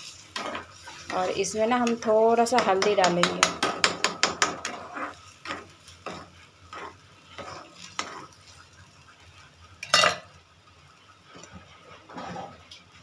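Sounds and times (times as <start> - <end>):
spatula scraping batter in pan: 0.0 - 3.0, 3.7 - 9.0, 11.3 - 12.8
metallic clatter against pan: 9.8 - 10.3.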